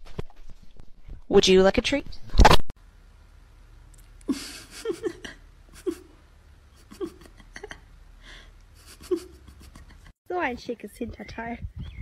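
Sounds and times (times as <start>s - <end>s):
person chuckling quietly: 4.2s - 10.2s.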